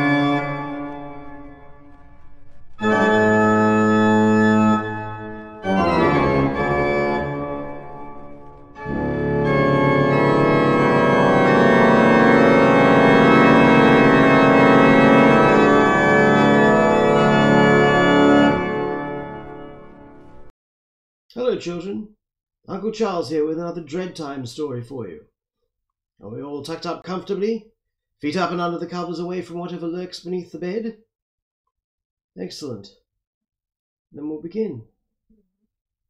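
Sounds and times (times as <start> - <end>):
organ music: 0.0 - 20.5.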